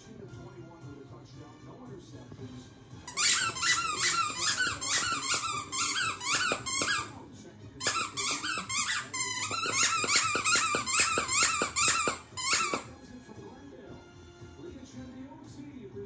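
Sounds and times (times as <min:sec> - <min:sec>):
squeaky toy squeaking: 0:03.1 - 0:07.2, 0:07.8 - 0:12.9.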